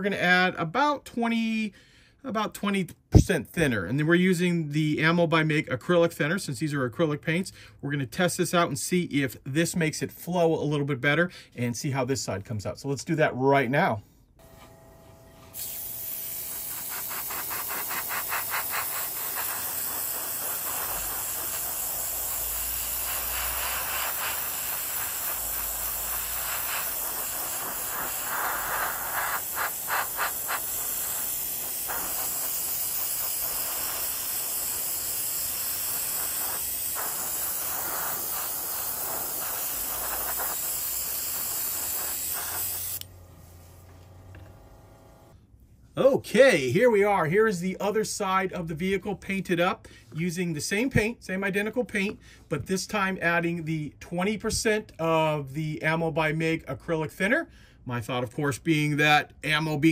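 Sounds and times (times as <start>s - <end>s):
airbrush spraying hiss: 15.6s - 43.9s.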